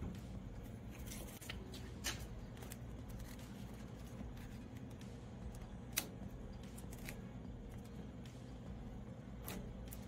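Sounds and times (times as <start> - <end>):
low steady hum: 0.0 - 10.0
hands rubbing vinyl film: 0.6 - 8.0.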